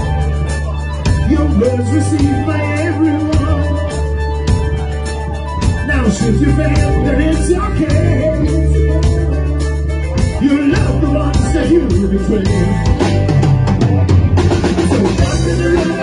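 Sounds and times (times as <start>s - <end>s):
bass guitar: 0.0s - 16.0s
drums: 0.0s - 16.0s
electric guitars: 0.0s - 16.0s
lead vocal singing: 5.9s - 9.7s, 14.6s - 16.0s.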